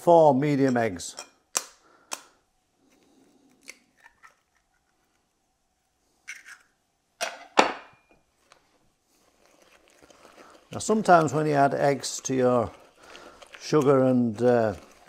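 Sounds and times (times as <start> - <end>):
eggs cracked with a knife: 1.5 - 2.4.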